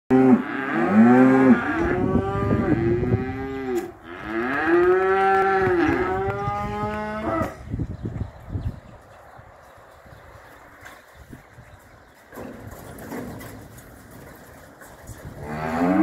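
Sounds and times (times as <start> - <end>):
cattle mooing: 0.1 - 7.6, 15.4 - 16.0.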